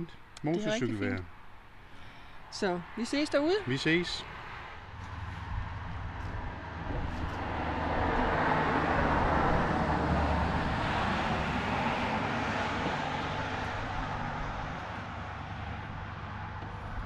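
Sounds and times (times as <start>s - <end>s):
wind noise: 5.2s - 14.2s.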